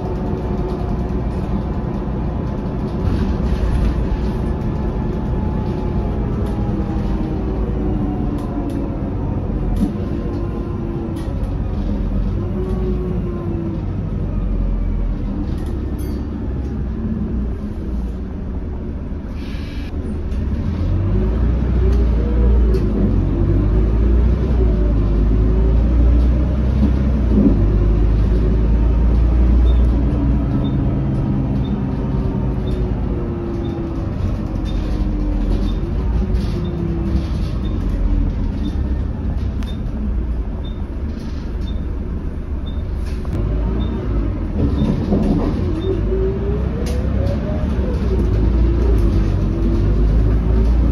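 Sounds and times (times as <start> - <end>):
bus body rattles: 0.0 - 19.3, 19.9 - 50.9
bus diesel engine rumble: 0.0 - 50.9.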